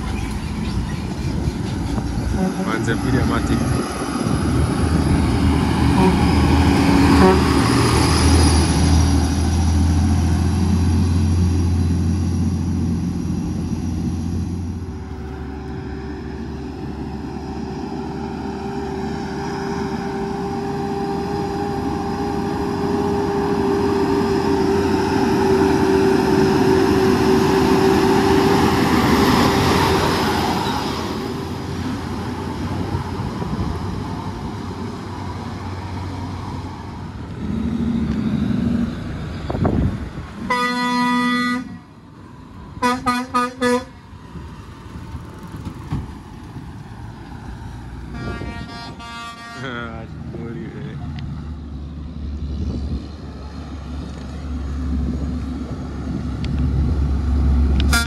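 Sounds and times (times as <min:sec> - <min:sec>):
vehicle horn toots: 0:02.3 - 0:02.8, 0:06.0 - 0:06.3, 0:07.1 - 0:07.6, 0:40.5 - 0:41.8, 0:42.8 - 0:43.9, 0:48.1 - 0:49.8.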